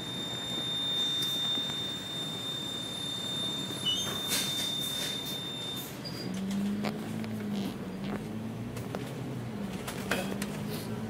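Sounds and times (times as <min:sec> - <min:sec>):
bus engine and road rumble: 0:03.7 - 0:11.0.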